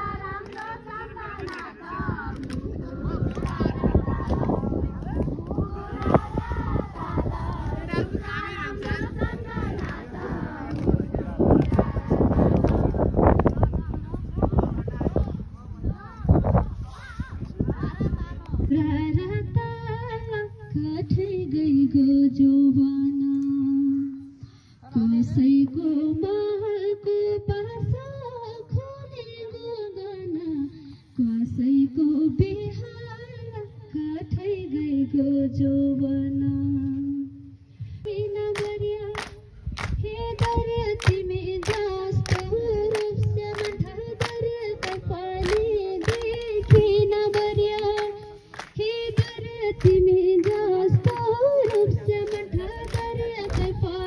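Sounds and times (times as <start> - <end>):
woman singing into a microphone: 17.7 - 54.0.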